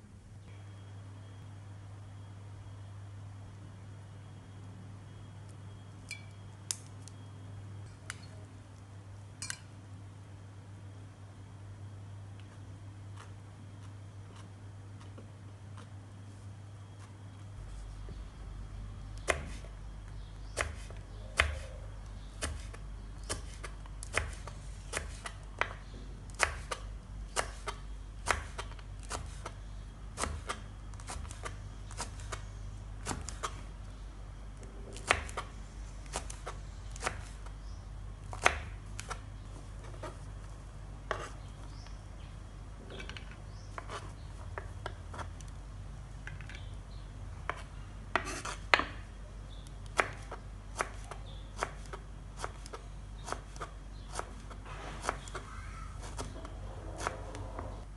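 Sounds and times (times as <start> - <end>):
steady low hum: 0.0 - 57.9
knife slicing on wooden board: 41.1 - 41.4.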